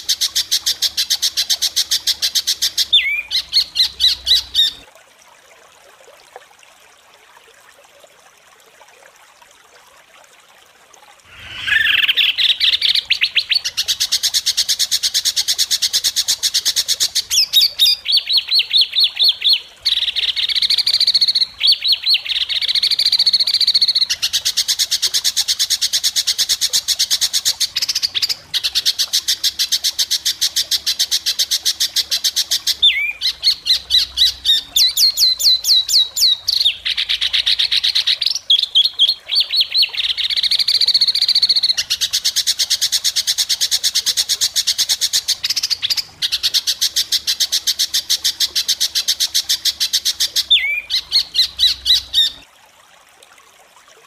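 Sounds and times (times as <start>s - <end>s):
songbird rapid trills: 11.3s - 52.4s.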